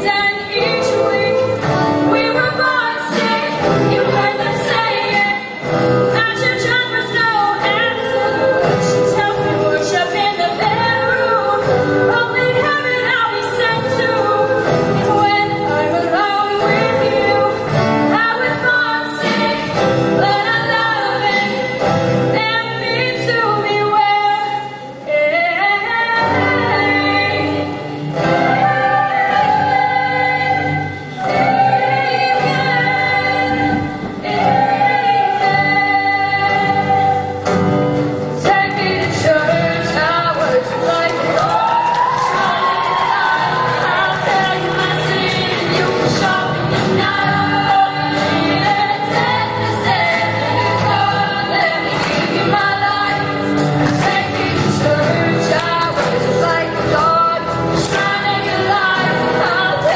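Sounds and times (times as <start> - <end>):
choir singing in harmony: 0.0 - 23.9, 25.8 - 59.9
female lead voices singing: 0.0 - 59.9
drum kit and band: 36.4 - 59.9.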